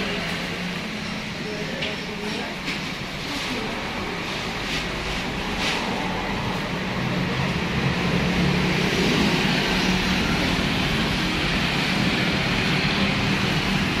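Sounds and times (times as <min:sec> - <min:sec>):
motorbike engines passing: 0:03.7 - 0:14.0.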